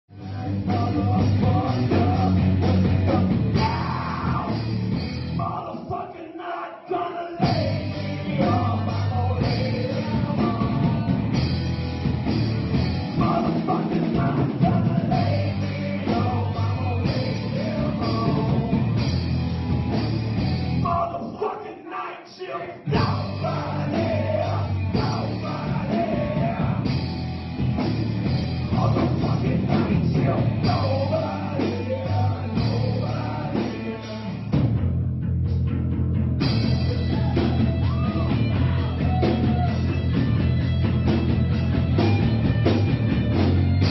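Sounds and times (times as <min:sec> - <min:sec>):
person singing: 0:00.1 - 0:04.7, 0:05.3 - 0:11.4, 0:13.2 - 0:19.0, 0:20.8 - 0:27.0, 0:28.6 - 0:34.6
rock band playing: 0:00.1 - 0:05.9, 0:07.4 - 0:21.2, 0:22.8 - 0:43.9.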